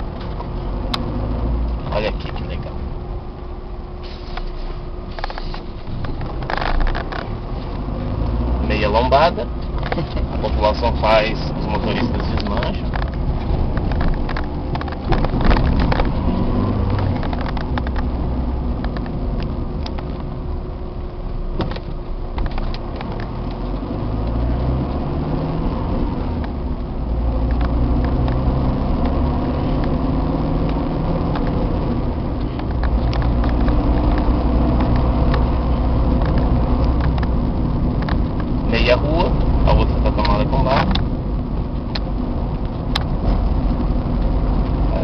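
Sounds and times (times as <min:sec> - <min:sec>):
car engine from inside cabin: 0:00.0 - 0:45.0
knocks and rattles over bumps: 0:11.6 - 0:20.3, 0:30.6 - 0:35.5.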